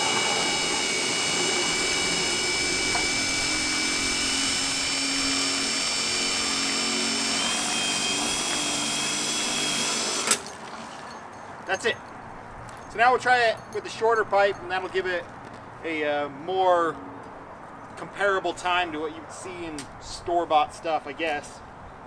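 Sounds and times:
impact driver high-pitched whine: 0.0 - 10.4.

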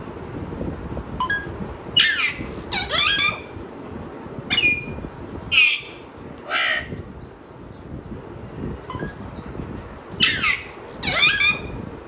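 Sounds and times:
parrot squawking: 2.0 - 3.5, 5.5 - 6.9, 10.2 - 11.8.

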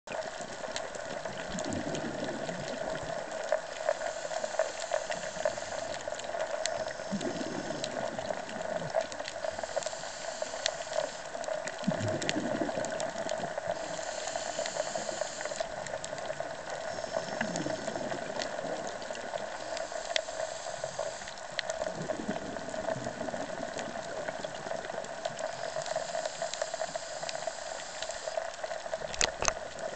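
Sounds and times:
bubbling exhale: 1.3 - 28.4
diver inhaling through regulator: 3.8 - 8.8, 9.4 - 15.8, 16.8 - 18.6, 19.4 - 21.4.

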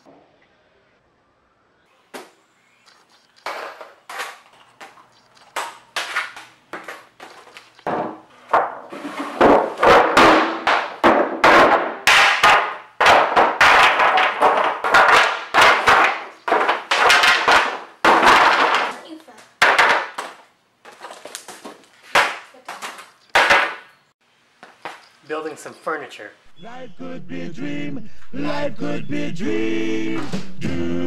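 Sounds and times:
wooden boards dropped on concrete: 3.3 - 24.0.

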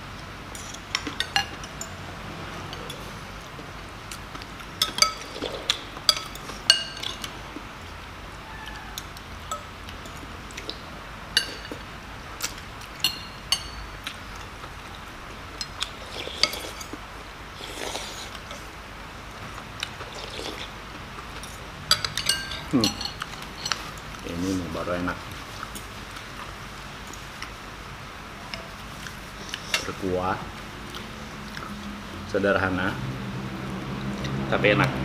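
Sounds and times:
cutlery clinking on bowls: 0.5 - 2.0, 4.8 - 7.4, 11.4 - 11.8, 13.0 - 14.5, 21.4 - 24.1
person slurping: 15.8 - 16.9, 17.6 - 18.7, 19.9 - 20.8.

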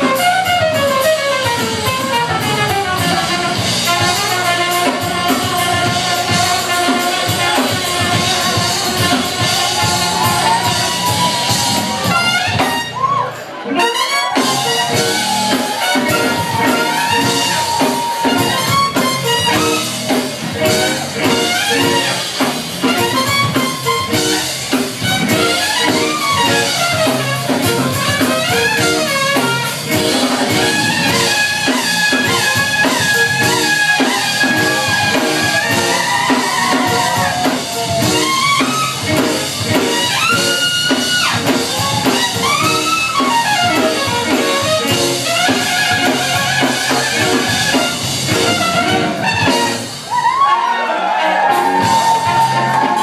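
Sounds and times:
jazz-funk band playing: 0.0 - 53.0
trumpet lead melody: 0.0 - 53.0.

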